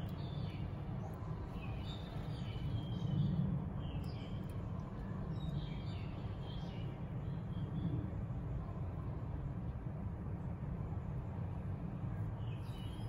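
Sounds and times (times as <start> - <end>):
small birds chirping: 0.0 - 7.9, 12.4 - 13.0.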